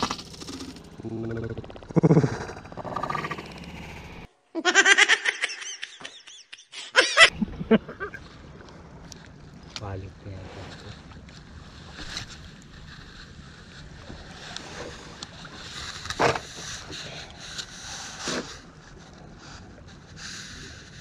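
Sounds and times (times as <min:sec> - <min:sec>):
water lapping around boat: 0:08.0 - 0:21.0.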